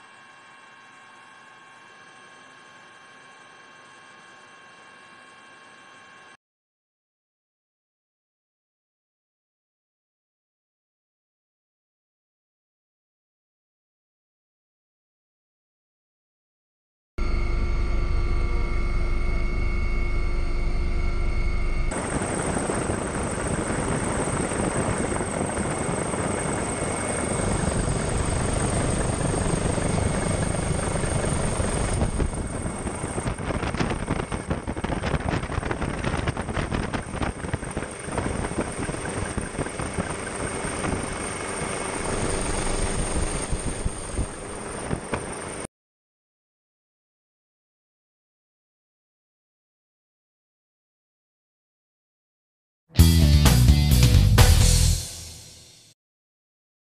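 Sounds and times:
helicopter rotor and engine: 0.0s - 6.4s, 17.2s - 45.7s.

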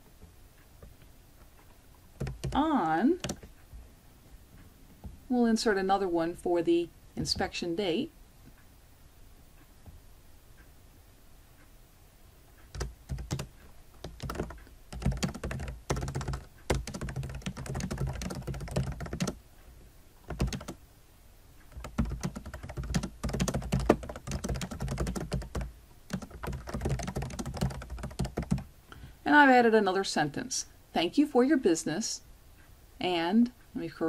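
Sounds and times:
typing on computer keyboard: 2.2s - 3.5s, 12.7s - 19.4s, 20.2s - 20.8s, 21.6s - 28.7s.

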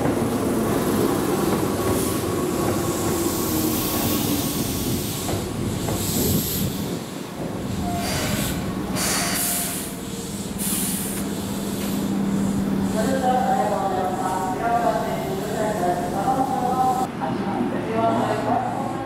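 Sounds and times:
brake air hisses: 7.8s - 13.1s.

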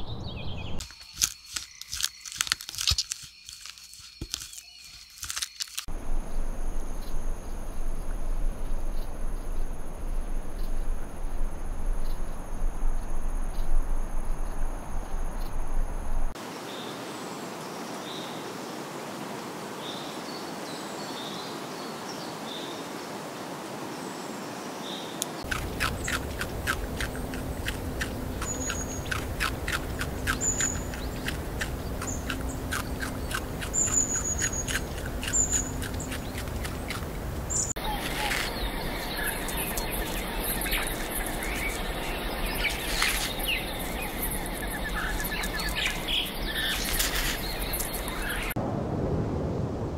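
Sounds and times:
low rumble: 5.9s - 16.4s, 25.6s - 49.9s.

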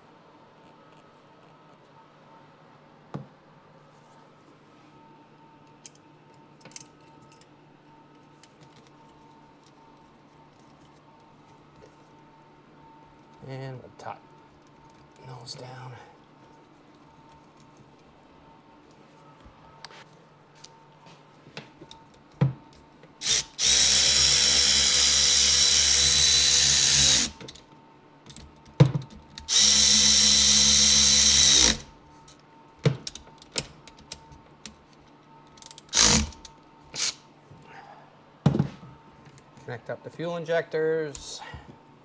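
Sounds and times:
cordless drill running: 23.2s - 27.4s, 29.5s - 31.9s, 35.9s - 36.4s.

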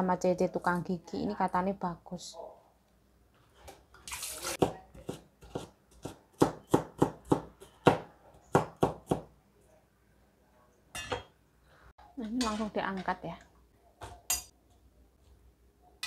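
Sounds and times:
cleaver chopping on cutting board: 4.6s - 9.3s.

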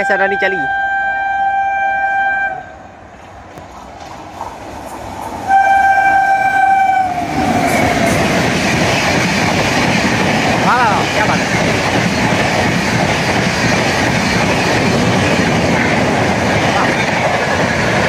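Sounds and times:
train horn: 0.0s - 2.8s, 5.5s - 7.8s
train coaches passing at speed: 0.0s - 18.0s.

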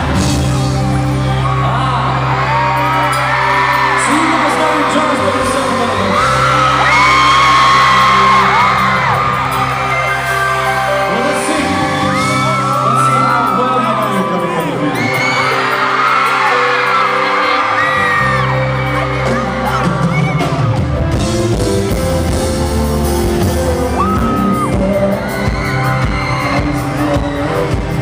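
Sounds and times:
drums: 0.0s - 28.0s
fans screaming: 0.0s - 28.0s
live pop band: 0.0s - 28.0s
man singing: 4.0s - 9.4s, 22.2s - 28.0s
bass notes: 18.0s - 28.0s.

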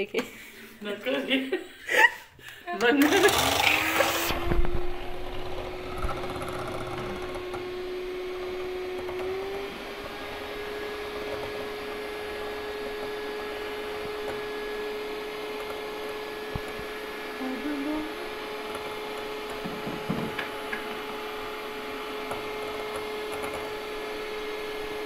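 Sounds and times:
electric hand mixer whining: 2.8s - 25.0s.

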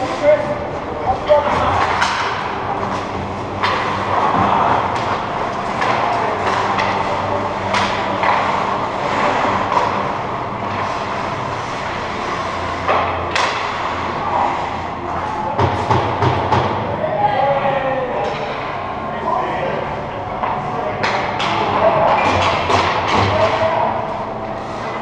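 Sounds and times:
skates scraping ice: 0.0s - 16.0s
steady low hum: 0.0s - 25.0s
hockey sticks and puck knocking: 1.2s - 11.2s, 12.7s - 14.1s, 15.5s - 16.9s, 20.4s - 23.9s.

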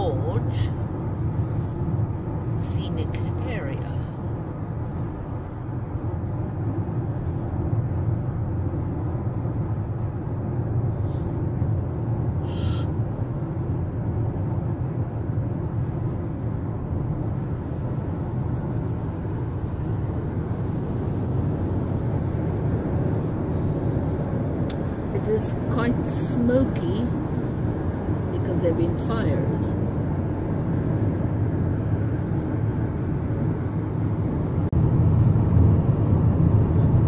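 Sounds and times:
car cabin road and engine noise: 0.0s - 37.0s.

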